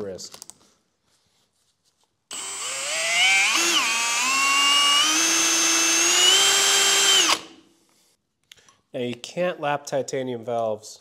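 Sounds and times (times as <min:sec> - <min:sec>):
electric power tool motor whining: 0:02.3 - 0:07.5.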